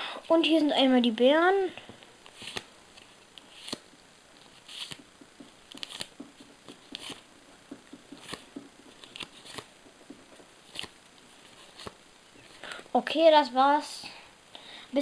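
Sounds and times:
cards flipped by hand: 2.2 - 12.6.

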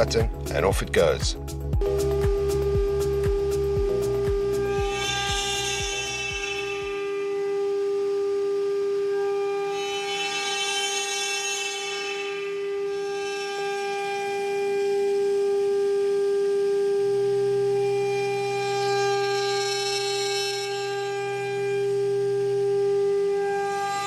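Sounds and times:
router spindle high whine: 1.8 - 24.0.

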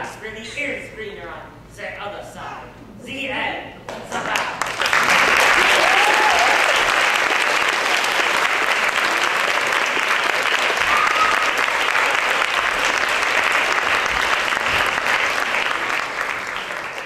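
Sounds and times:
audience applauding: 4.3 - 17.0
high cry from crowd: 5.6 - 6.8, 10.8 - 12.2.

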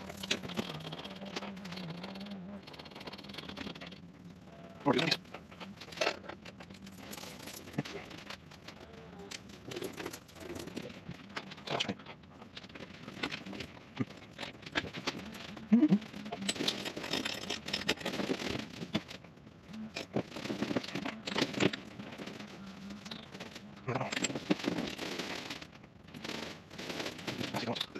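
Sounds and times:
fabric rustling and crumpling: 12.2 - 27.9.

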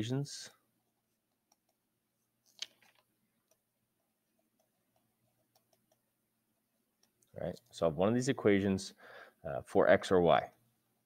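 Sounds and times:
stylus tapping on tablet screen: 4.4 - 6.1.

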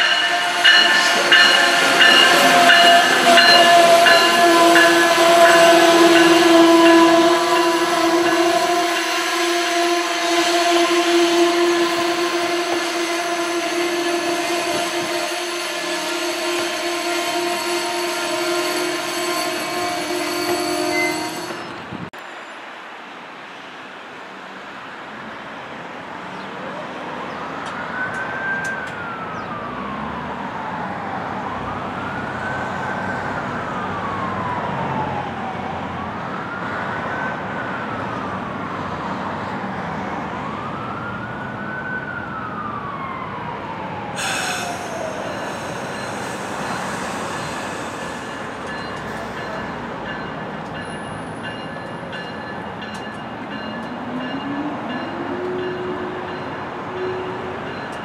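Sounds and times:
steady high tones: 0.0 - 5.6
emergency vehicle siren wailing: 0.0 - 21.2, 26.6 - 58.0.

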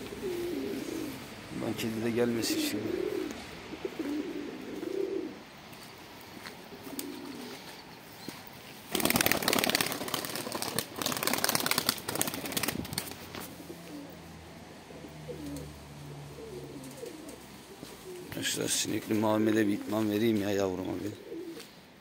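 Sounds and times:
pigeons cooing: 0.0 - 7.8, 13.3 - 20.0, 20.7 - 21.8
pigeon wings flapping: 8.9 - 13.5.

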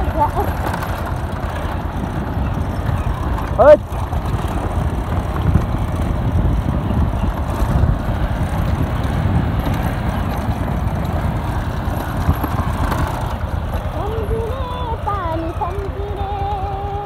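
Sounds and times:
motorcycle engine rumbling: 0.0 - 17.0
rough road noise: 0.0 - 17.0.

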